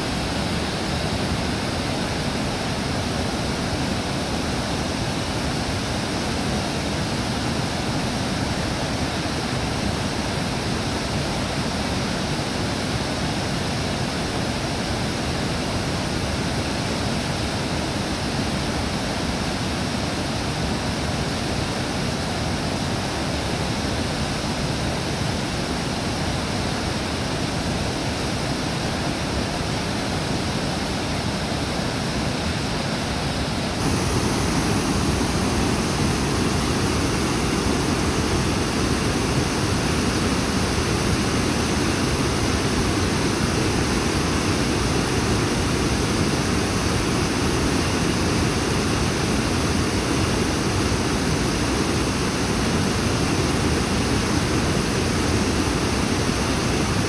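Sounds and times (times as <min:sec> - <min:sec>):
water rushing over dam spillway: 0:00.0 - 0:57.0.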